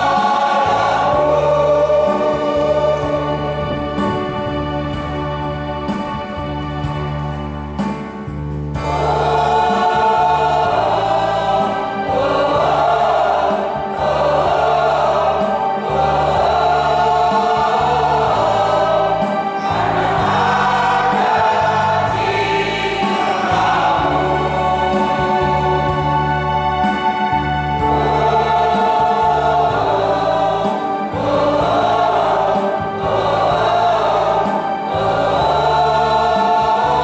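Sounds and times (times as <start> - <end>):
choir singing a hymn: 0.0 - 37.0
sustained instrumental accompaniment: 0.0 - 37.0.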